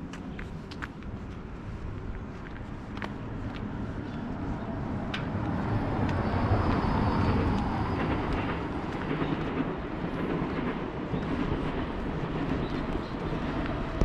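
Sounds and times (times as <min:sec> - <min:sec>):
faint footsteps: 0:00.0 - 0:09.7.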